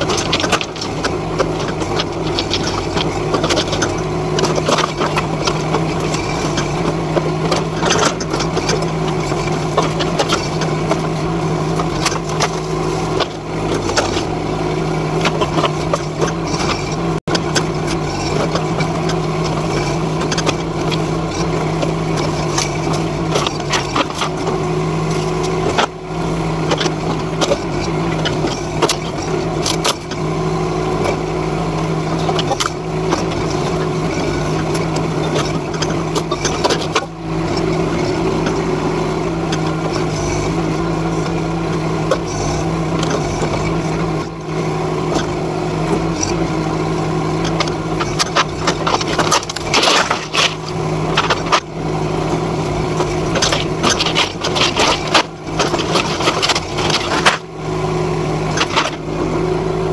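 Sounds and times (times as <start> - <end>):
excavator engine running: 0.0 - 59.9.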